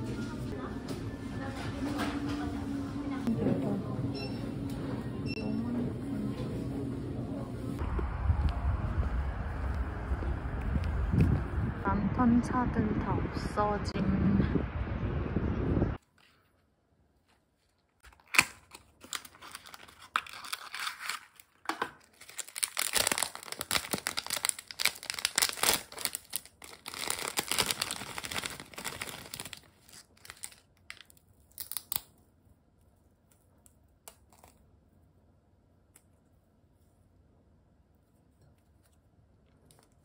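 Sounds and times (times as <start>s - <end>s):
packaging being torn and crinkled: 18.0s - 32.2s.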